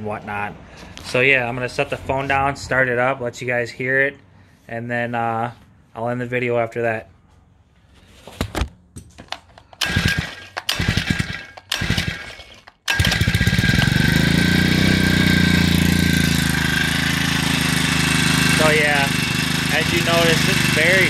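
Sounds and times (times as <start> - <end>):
recoil starter cranking: 9.5 - 21.0
small engine idling: 9.8 - 21.0.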